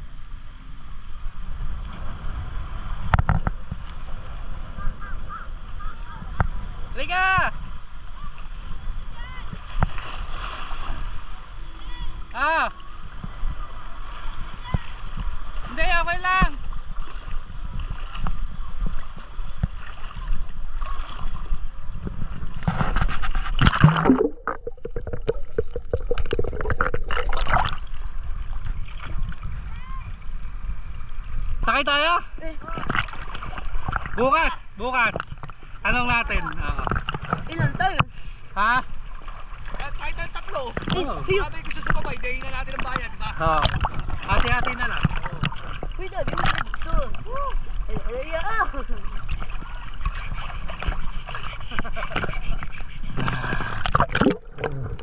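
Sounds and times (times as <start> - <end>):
wind rumbling on microphone: 0.0 - 38.1, 39.0 - 55.0
wind buffeting microphone: 1.2 - 12.3, 16.4 - 31.7
small waves lapping: 1.7 - 55.0.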